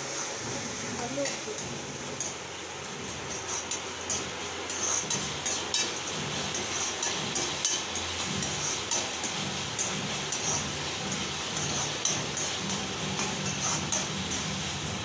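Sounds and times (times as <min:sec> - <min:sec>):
vegetables sizzling in oil: 0:00.0 - 0:15.0
metal ladle scraping a pan: 0:03.1 - 0:14.8.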